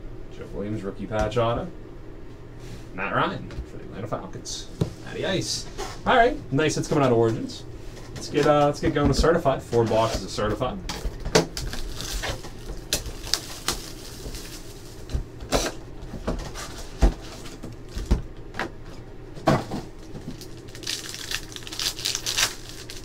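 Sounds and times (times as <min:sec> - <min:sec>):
foil wrapper crinkling: 0:11.6 - 0:15.1, 0:20.0 - 0:23.0.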